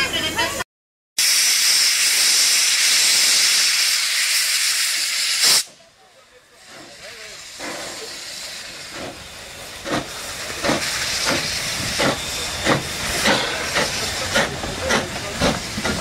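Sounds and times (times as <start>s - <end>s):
steam hissing: 1.2s - 5.8s, 6.4s - 16.0s
steam locomotive exhaust chuffs: 1.2s - 5.8s, 6.5s - 16.0s.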